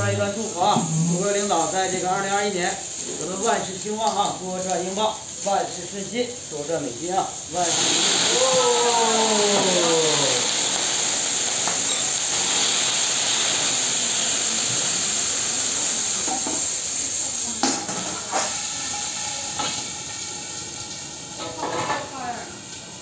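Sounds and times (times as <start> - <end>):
food sizzling on a griddle: 0.0 - 23.0
metal tools clanking on griddle: 11.8 - 12.2.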